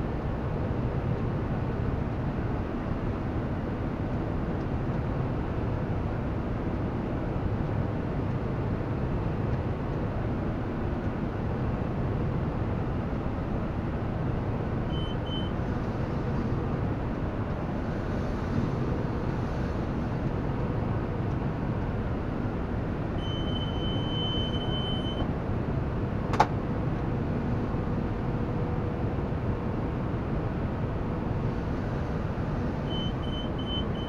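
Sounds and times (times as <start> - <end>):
tractor and baler drone: 0.0 - 34.0
electronic beeps: 23.2 - 25.2, 32.9 - 34.0.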